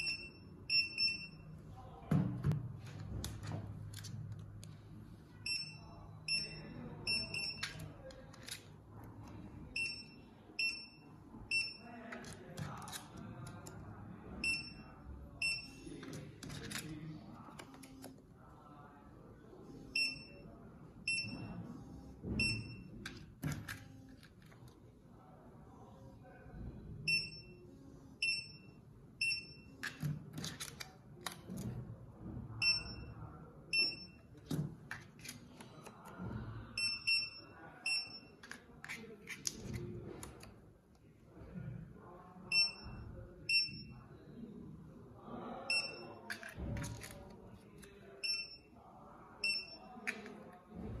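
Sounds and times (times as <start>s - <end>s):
paper labels rustling and knocking: 2.1s - 4.6s.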